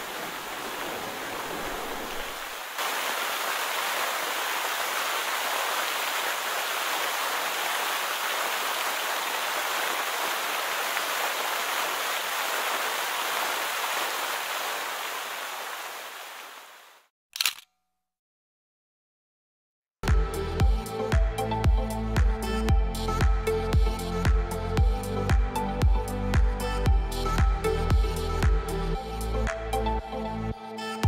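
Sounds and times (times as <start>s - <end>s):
waterfall rushing: 0.0s - 16.9s.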